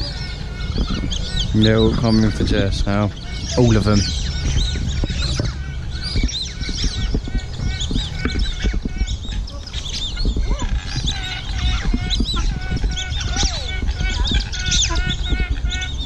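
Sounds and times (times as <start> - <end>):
whistling ducks calling: 0.0 - 16.0.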